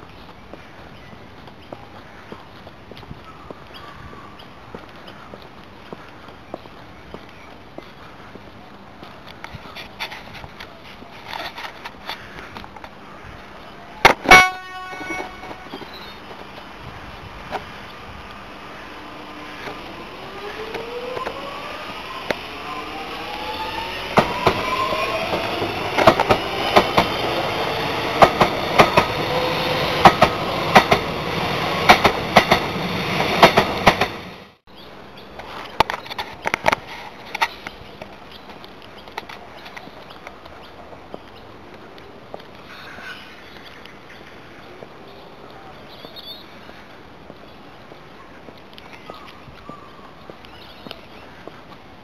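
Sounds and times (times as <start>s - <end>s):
electric train passing: 14.4s - 34.6s
train motors whining: 18.8s - 34.5s
wheels clacking over rail joints: 23.8s - 34.5s.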